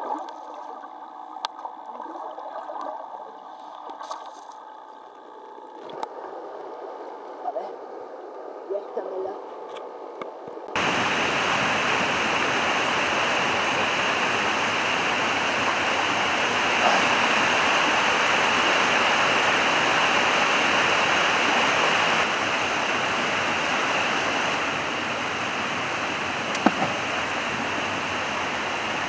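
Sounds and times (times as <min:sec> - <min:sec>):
river rushing over boulders: 0:10.8 - 0:29.0.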